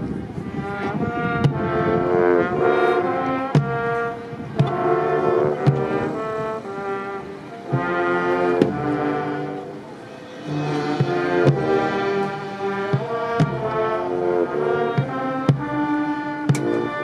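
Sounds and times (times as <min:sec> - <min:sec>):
marching band brass chords: 0:00.0 - 0:17.0
sharp percussion hits: 0:10.2 - 0:13.9.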